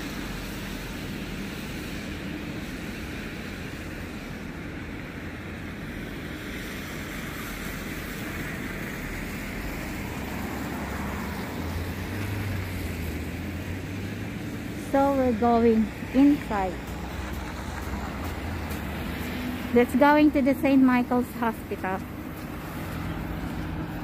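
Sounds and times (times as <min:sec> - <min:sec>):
engine rumble: 0:00.0 - 0:24.0.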